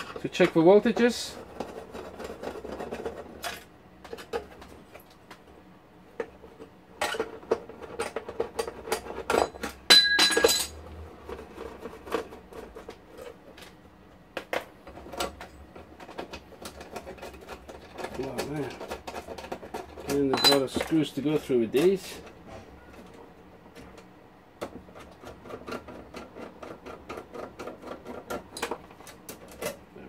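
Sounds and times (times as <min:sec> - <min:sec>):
screwdriver and screws clinking on metal: 0:07.9 - 0:10.8, 0:16.0 - 0:22.3.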